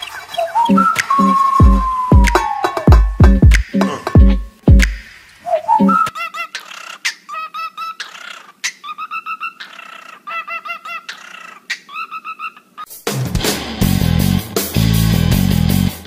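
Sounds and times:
cockatiel chirping: 0.0 - 2.3.

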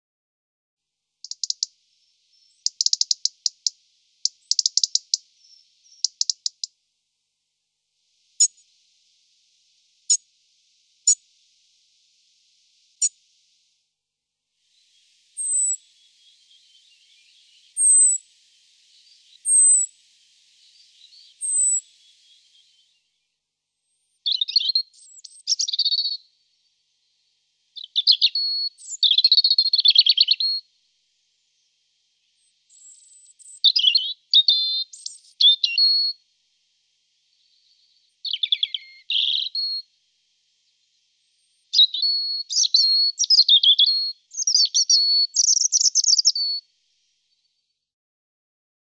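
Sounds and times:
robin singing: 1.2 - 6.8, 14.7 - 30.7, 31.5 - 36.2, 37.1 - 40.0, 40.6 - 46.7.

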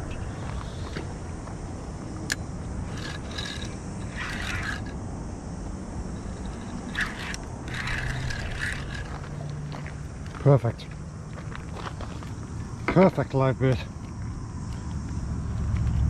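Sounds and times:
steady background hiss: 0.0 - 15.5
irregular scraping: 0.1 - 5.0, 5.6 - 10.4.

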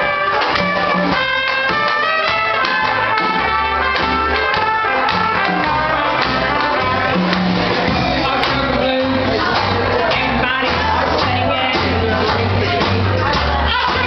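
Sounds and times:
jazz band playing: 0.0 - 14.0
woman singing: 8.0 - 14.0.

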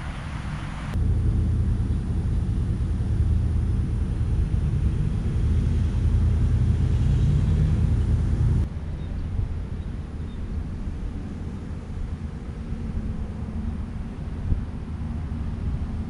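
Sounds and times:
loud low rumble: 0.0 - 8.7
faint hum: 0.0 - 16.0.

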